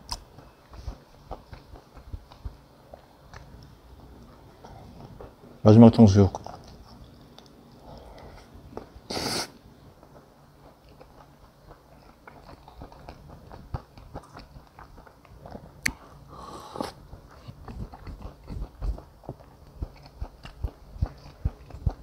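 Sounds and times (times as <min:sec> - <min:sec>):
close-miked chewing and biting: 0:00.0 - 0:03.7, 0:06.3 - 0:08.1, 0:10.0 - 0:16.1, 0:16.8 - 0:22.0.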